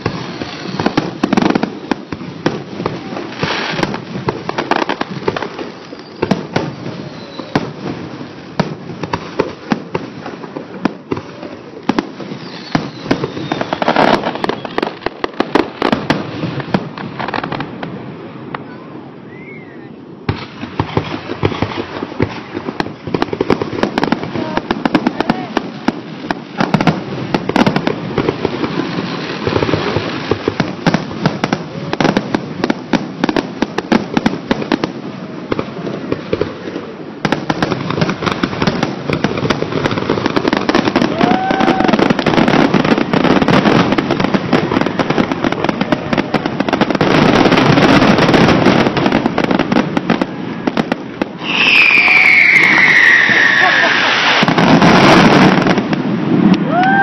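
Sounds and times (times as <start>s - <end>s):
fireworks shell bursts and crackling: 51.3s - 56.6s.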